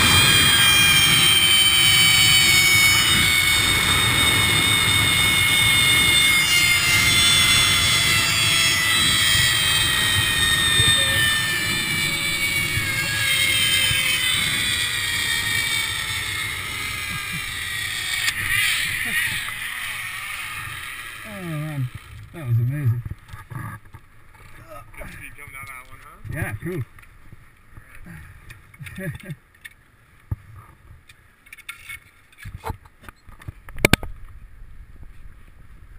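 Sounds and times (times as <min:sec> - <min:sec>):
zip line pulleys whining: 0:00.0 - 0:22.6
wind rumble on microphone: 0:00.0 - 0:25.2.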